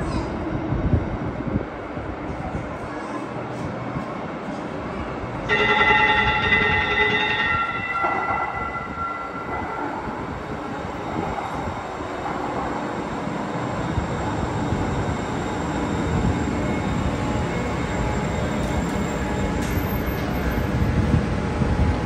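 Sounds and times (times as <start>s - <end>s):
light rail train rumbling: 0.0s - 22.0s.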